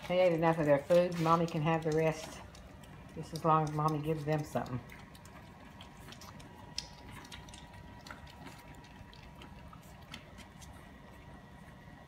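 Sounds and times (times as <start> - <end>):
puppies suckling: 0.0 - 12.0.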